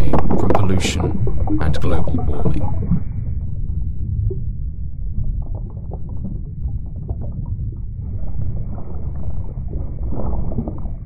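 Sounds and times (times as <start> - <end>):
underwater low rumble: 0.0 - 11.0.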